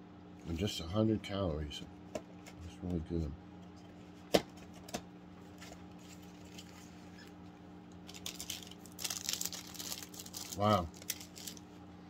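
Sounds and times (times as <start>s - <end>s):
snack packaging crinkling: 8.0s - 11.7s.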